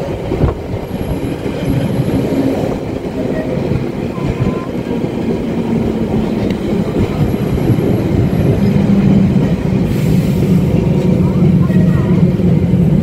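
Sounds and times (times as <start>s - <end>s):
tram low hum: 0.0s - 13.0s
tram wheels rumbling on rails: 0.0s - 13.0s.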